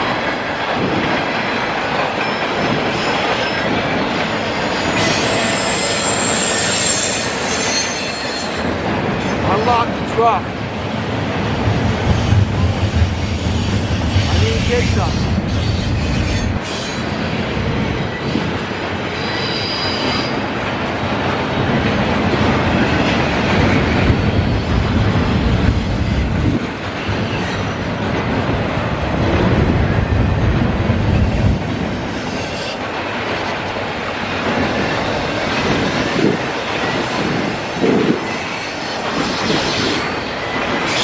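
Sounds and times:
freight train wheels rumbling: 0.0s - 41.0s
high wheel squeal: 4.6s - 9.4s, 13.2s - 17.2s, 18.1s - 20.4s.

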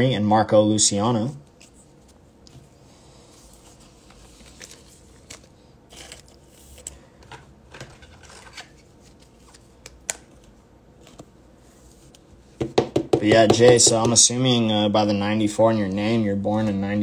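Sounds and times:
cards and plastic rustling: 3.3s - 11.3s.

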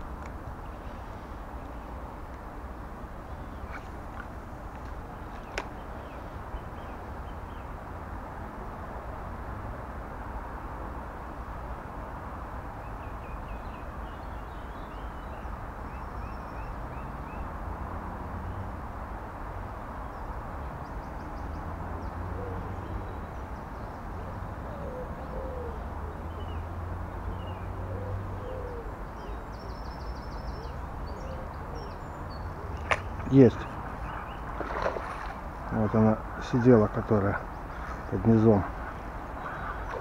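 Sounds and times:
low cooing calls: 22.3s - 23.1s, 24.6s - 26.6s, 27.2s - 29.5s, 30.4s - 35.3s, 37.4s - 40.0s.

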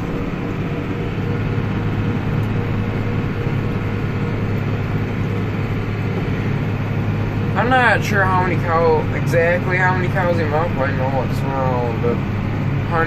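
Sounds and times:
tractor engine droning: 0.0s - 13.0s
tyre and road noise: 0.0s - 13.0s.

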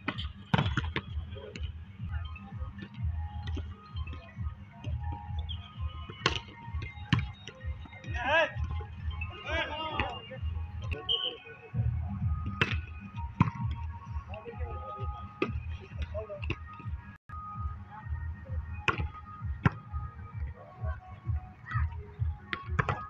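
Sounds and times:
volleyball hits: 0.0s - 1.8s, 2.8s - 9.2s, 12.4s - 13.9s, 18.8s - 20.5s, 22.4s - 23.0s
faint background music: 0.0s - 23.0s.

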